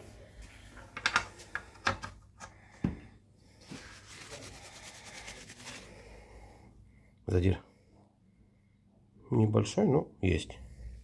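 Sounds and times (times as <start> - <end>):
paper towel rubbing metal: 3.6 - 6.0.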